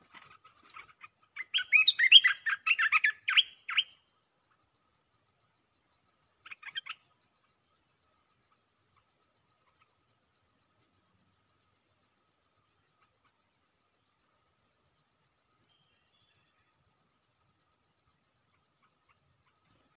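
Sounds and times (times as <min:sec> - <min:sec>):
bird call: 0:00.0 - 0:04.0, 0:06.4 - 0:07.2
high insect trill: 0:00.0 - 0:20.0.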